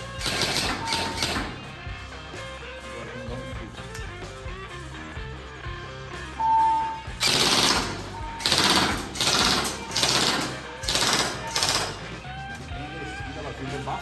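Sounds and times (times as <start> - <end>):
airsoft gun firing bursts: 0.1 - 1.6, 7.2 - 12.0
short electronic beep: 6.4 - 7.2.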